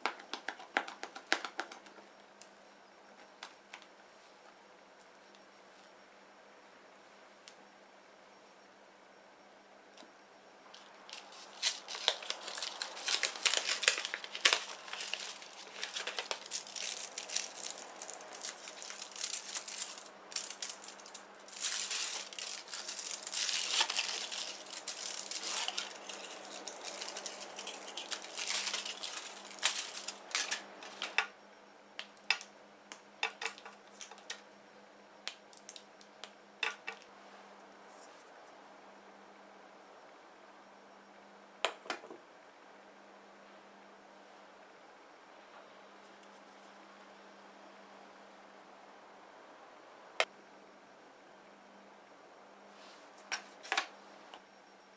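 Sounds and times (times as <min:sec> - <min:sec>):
paper cups tapping on metal tray: 0:00.0 - 0:02.0
foil wrapper crinkling and tearing: 0:10.8 - 0:31.2.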